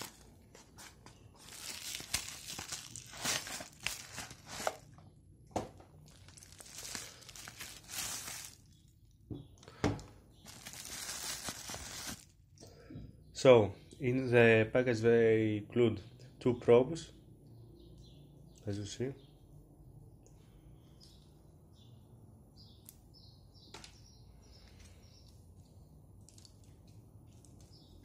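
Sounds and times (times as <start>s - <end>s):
plastic packaging crinkling: 0.0s - 5.0s, 5.9s - 9.1s, 10.4s - 12.4s.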